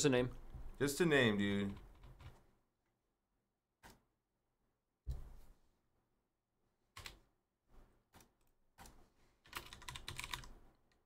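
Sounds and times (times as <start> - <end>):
typing on computer keyboard: 1.7 - 2.4, 8.2 - 11.0.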